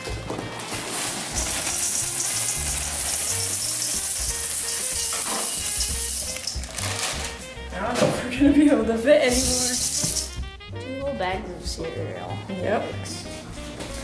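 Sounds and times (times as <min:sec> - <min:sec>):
background music with bass: 0:00.0 - 0:14.0
cereal pouring into metal bowl: 0:00.6 - 0:07.4, 0:09.4 - 0:10.4.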